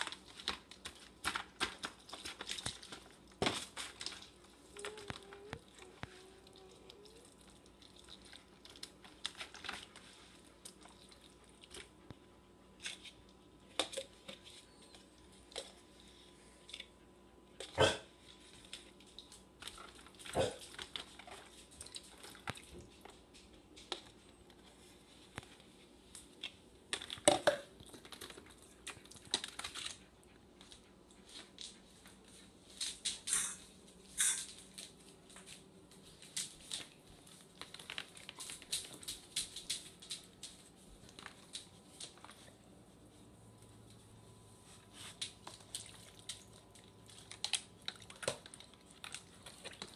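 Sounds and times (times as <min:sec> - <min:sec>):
hands squishing soft food: 0:00.0 - 0:16.9, 0:34.2 - 0:49.9
faint steady hum: 0:00.0 - 0:49.9
plastic container crinkling: 0:34.2 - 0:42.6.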